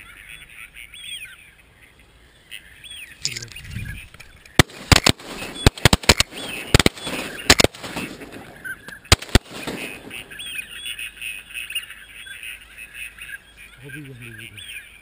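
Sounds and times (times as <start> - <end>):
ducks calling: 0.0 - 15.0
shotgun shots: 4.6 - 10.7.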